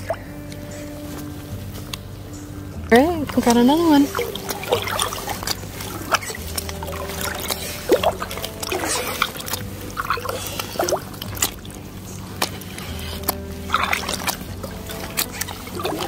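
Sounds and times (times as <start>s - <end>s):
fish splashing in water: 3.2s - 16.0s.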